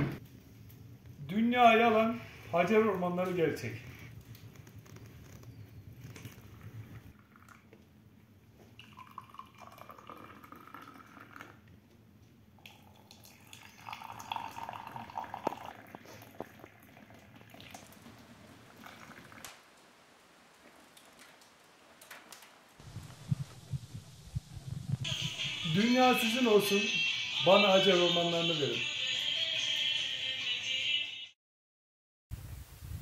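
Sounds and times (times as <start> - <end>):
hot water pouring into cup: 8.7 - 11.7, 12.6 - 19.9.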